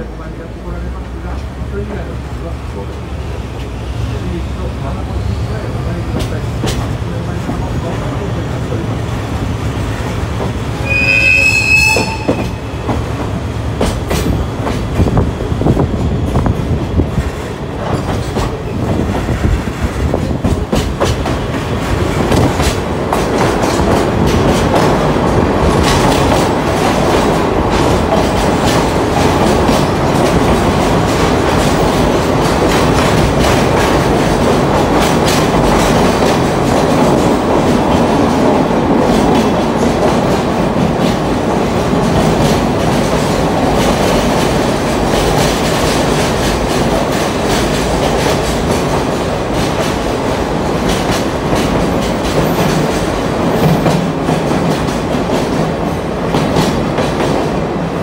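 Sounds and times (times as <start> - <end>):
train rumbling on track: 0.0 - 58.0
high-pitched wheel squeal: 10.8 - 12.8.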